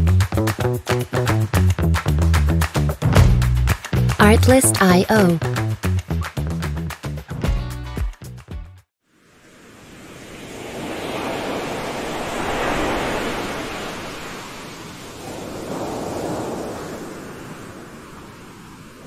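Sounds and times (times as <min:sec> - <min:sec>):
ocean surf rushing up a beach: 0:09.1 - 0:19.0.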